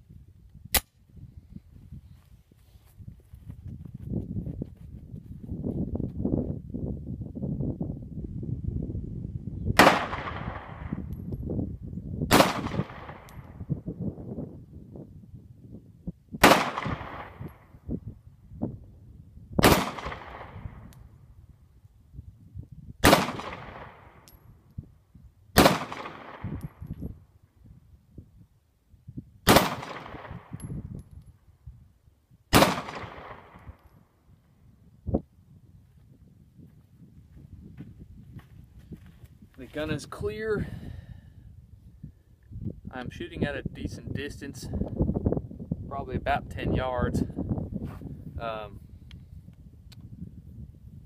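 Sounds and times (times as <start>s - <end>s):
pistol shots: 9.8s - 10.9s, 12.3s - 13.3s, 16.4s - 17.4s, 19.6s - 20.6s, 23.0s - 24.1s, 25.6s - 26.6s, 29.5s - 30.6s, 32.5s - 33.6s
pistol shots echoing: 29.5s - 30.5s, 32.5s - 33.6s.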